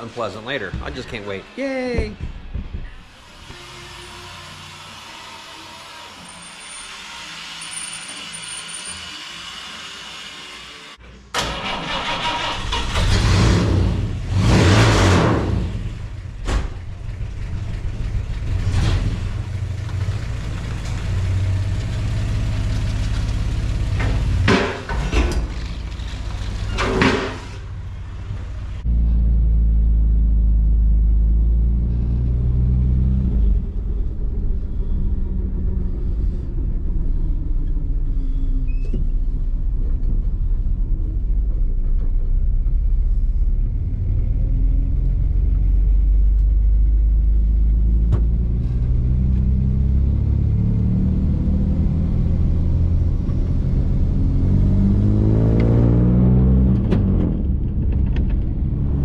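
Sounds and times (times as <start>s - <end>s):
car engine revving: 11.6s - 16.4s, 47.2s - 57.8s
car engine rumble from cabin: 27.8s - 59.0s.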